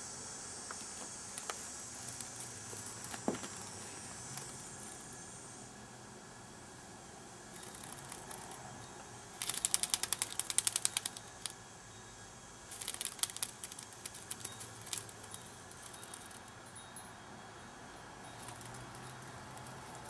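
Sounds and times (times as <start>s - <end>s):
cicada buzzing rattling clicks: 0.0s - 20.0s.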